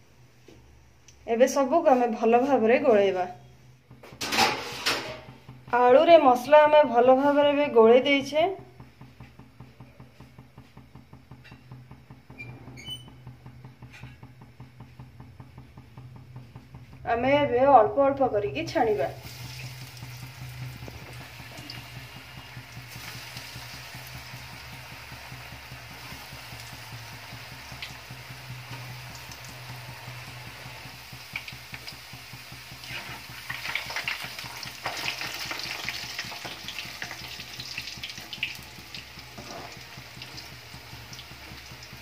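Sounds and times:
bubbling sizzle of deep-frying: 18.5 - 42.0.

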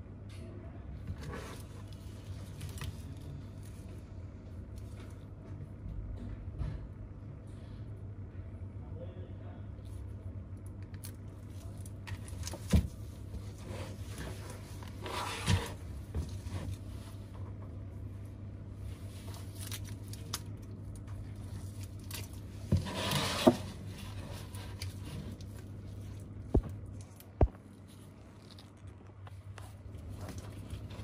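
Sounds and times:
rustling or scraping: 1.1 - 4.0, 11.5 - 17.8, 21.2 - 31.0.

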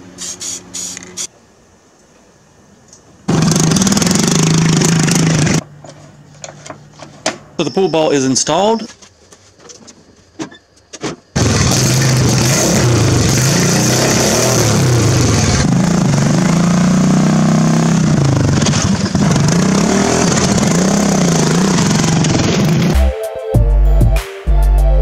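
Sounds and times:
lawn mower engine running: 3.3 - 5.6, 11.4 - 23.0.

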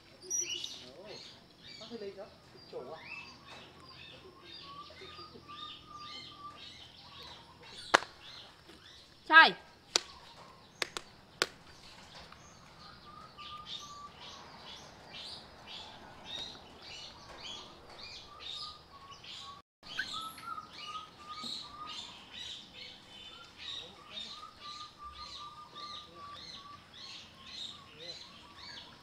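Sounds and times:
small birds chirping: 0.0 - 29.0
sharp clicks: 9.9 - 10.2, 10.8 - 11.6.

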